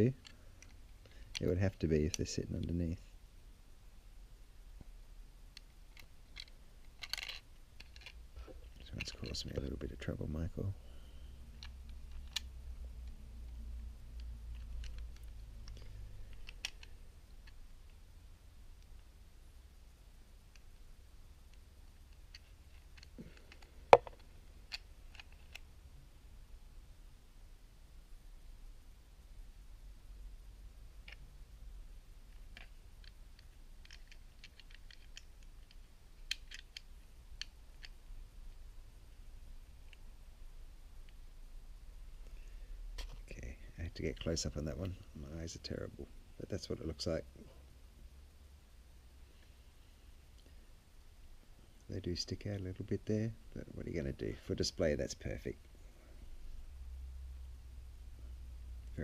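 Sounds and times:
faint low hum: 0.0 - 59.0
plastic toy parts clicking: 5.6 - 9.4, 11.6 - 12.5, 14.2 - 17.6, 21.5 - 25.6, 32.3 - 38.0
plastic toy clicks and taps: 24.0 - 24.2.

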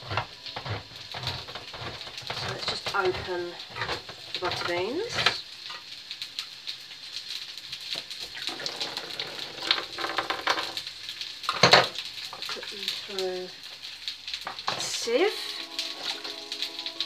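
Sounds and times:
handling noise: 0.0 - 5.8
sausages sizzling in a frying pan: 0.0 - 17.0.

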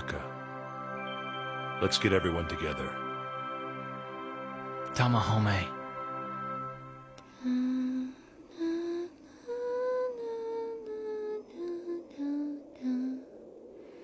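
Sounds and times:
slow soft solo melody: 0.0 - 10.3.

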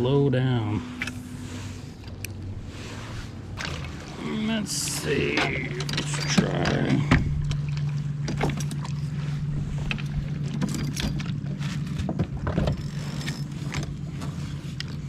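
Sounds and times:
steady low hum: 0.0 - 15.0
light clicks and knocks of kayak gear: 2.0 - 2.5, 5.0 - 15.0.

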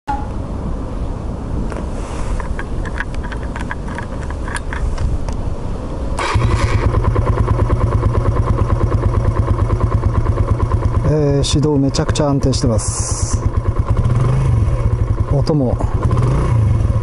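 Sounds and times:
motorcycle engine starting and idling: 6.2 - 17.0.

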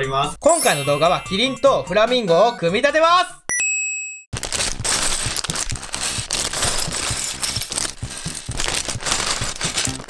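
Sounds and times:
plastic bag crinkling: 4.4 - 10.0
plastic bricks clattering on wood: 4.5 - 10.0.

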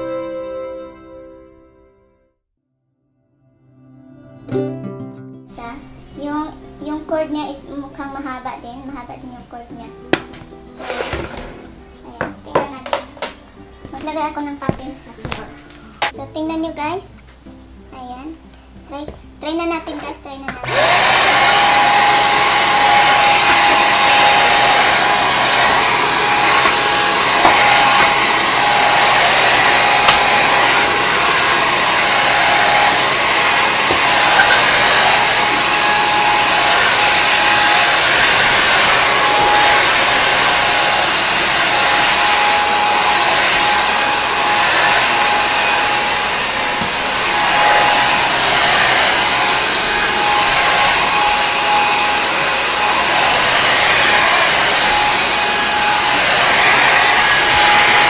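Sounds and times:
vacuum cleaner motor whine: 10.8 - 11.7, 20.6 - 58.0.

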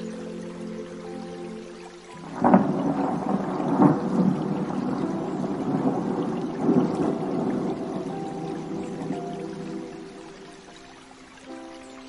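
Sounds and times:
thunder clap and rumble: 2.3 - 10.0.

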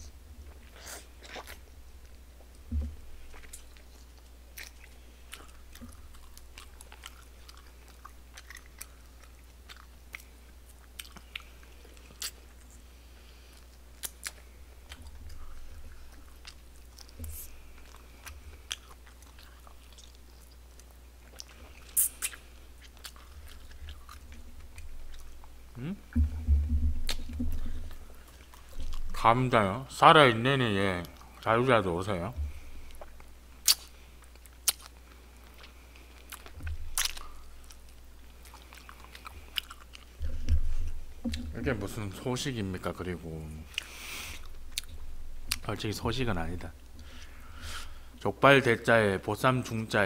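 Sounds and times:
person chewing meat: 0.0 - 29.4, 32.3 - 48.2
wet eating smacks: 13.6 - 29.2, 32.5 - 42.0.

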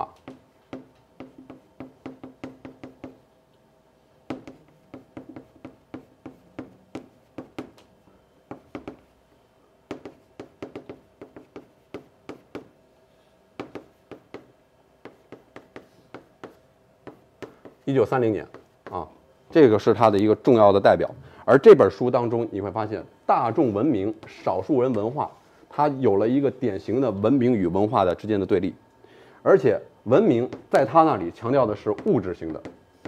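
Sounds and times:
chalk tapping on blackboard: 0.0 - 3.2, 4.3 - 7.9, 8.5 - 9.2, 9.9 - 12.8, 13.6 - 17.8, 18.4 - 19.0, 30.4 - 30.9, 31.7 - 33.0.

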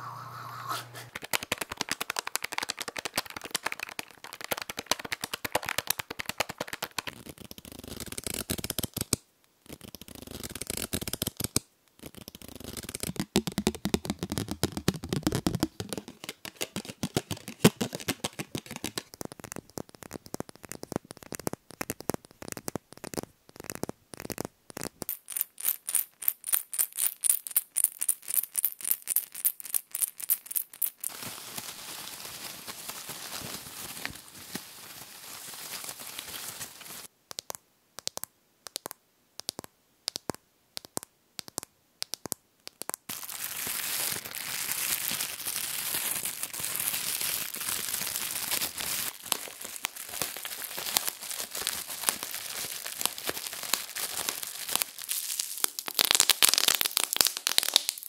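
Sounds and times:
tablets rattling in pill bottle: 1.1 - 7.2, 23.1 - 31.1.

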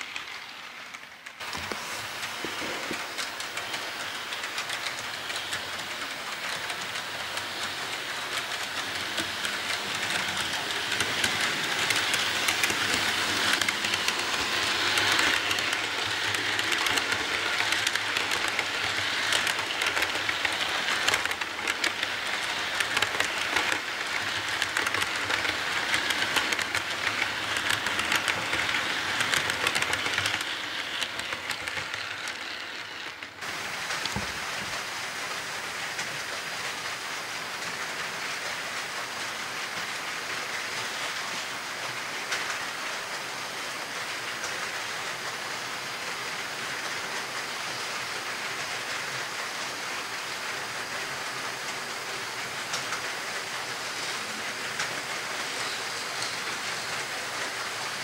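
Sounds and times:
model train wheels rattling on rails: 0.0 - 58.0
clicking over rail joints: 1.4 - 34.8.

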